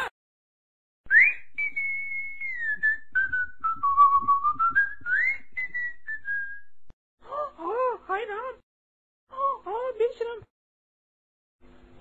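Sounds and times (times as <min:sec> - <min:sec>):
person whistling a tune: 0:01.1 - 0:06.8.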